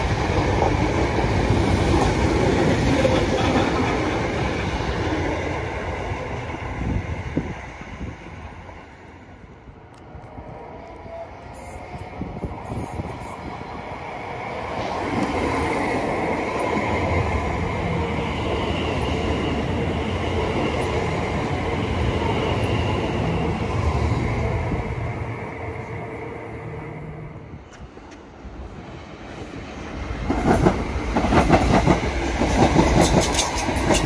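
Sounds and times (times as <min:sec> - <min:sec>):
train wheels rumbling on rails: 0:00.0 - 0:09.0, 0:27.5 - 0:34.0
high steady train whine: 0:00.0 - 0:34.0.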